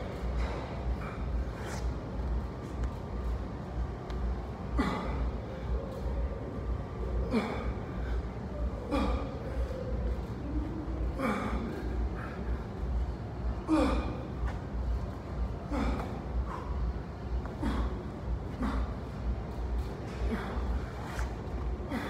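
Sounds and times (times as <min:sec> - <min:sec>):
low steady hum: 0:00.0 - 0:22.0
man grunting and exhaling: 0:13.6 - 0:14.4, 0:20.1 - 0:22.0.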